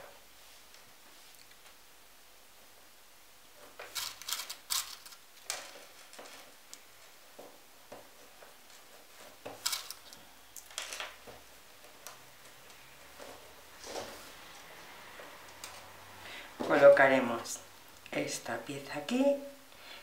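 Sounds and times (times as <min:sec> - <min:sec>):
faint clicks and rustles of handling: 0:03.5 - 0:16.0.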